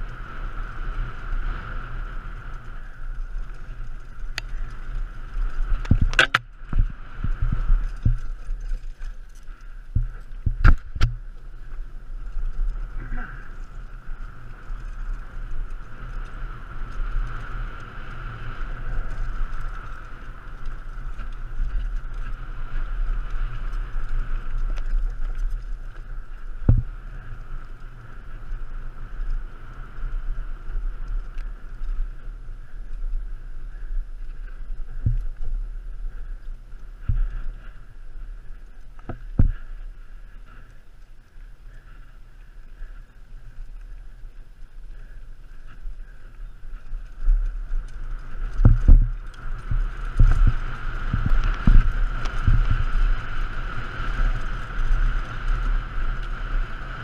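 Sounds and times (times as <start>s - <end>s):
bike trail noise: 0.0s - 57.0s
wind rush: 0.0s - 57.0s
sharp knocks from trail bumps: 4.3s - 11.5s, 37.0s - 40.8s.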